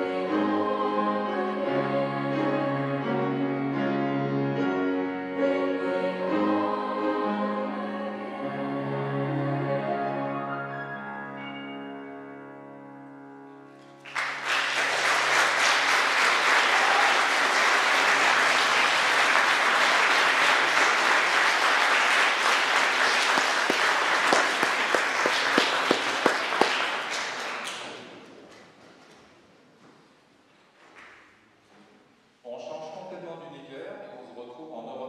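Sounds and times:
choir and piano chord: 0.0 - 14.4
audience applause: 14.0 - 28.1.

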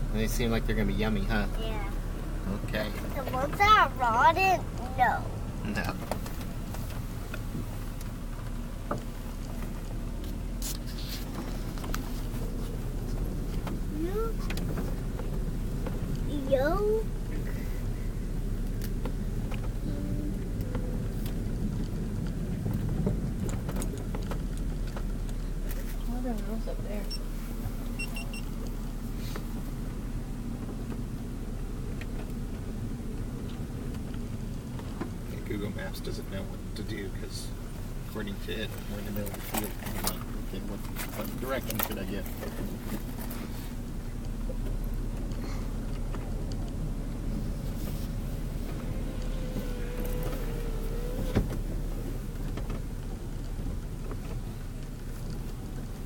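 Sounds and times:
car interior low rumble: 0.0 - 56.0
light clicks and rattles: 18.6 - 27.2, 30.6 - 56.0.

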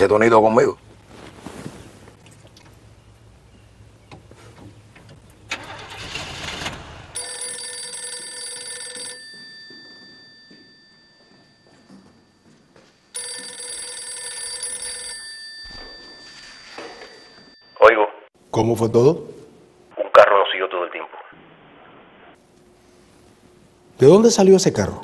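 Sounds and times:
telephone bell ringing: 7.2 - 18.3.

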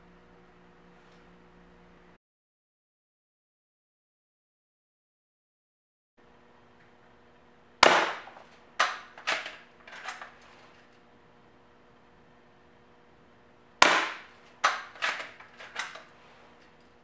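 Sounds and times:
air pistol shots: 7.8 - 9.6, 13.8 - 16.0.

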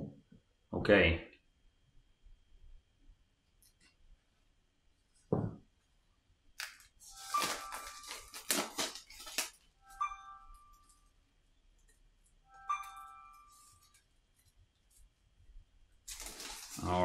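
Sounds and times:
plastic shrink-wrap crinkling and tearing: 6.6 - 9.7, 16.0 - 17.0
short ringing chime tone: 9.8 - 11.1, 12.5 - 14.0.

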